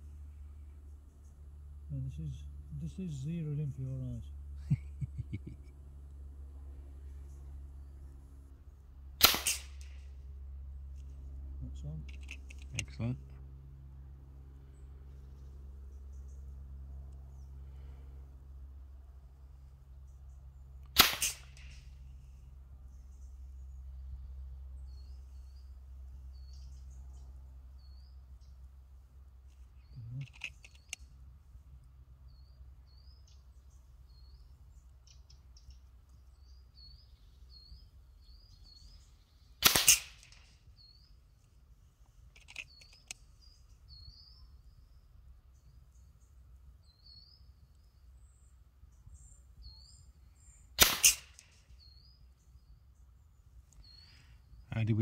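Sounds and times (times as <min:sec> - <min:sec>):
air rifle shots: 0:09.2 - 0:10.0, 0:20.9 - 0:21.9, 0:39.6 - 0:40.5, 0:50.8 - 0:51.6
small bird chirping: 0:22.8 - 0:28.8, 0:29.4 - 0:31.2, 0:32.2 - 0:39.6, 0:40.3 - 0:50.8, 0:51.4 - 0:55.0
faint clicks: 0:30.2 - 0:31.1, 0:41.4 - 0:43.3.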